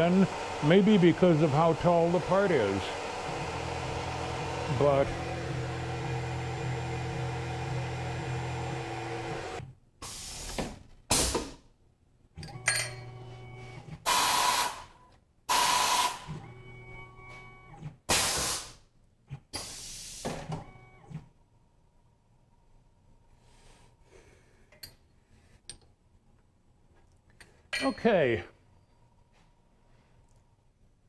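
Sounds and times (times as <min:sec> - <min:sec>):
motor hum: 0:00.0 - 0:09.7
quiet motor whines: 0:00.0 - 0:09.7, 0:16.0 - 0:18.0, 0:20.5 - 0:23.3
short sharp air hisses: 0:10.0 - 0:11.5, 0:18.1 - 0:18.8, 0:19.6 - 0:20.3.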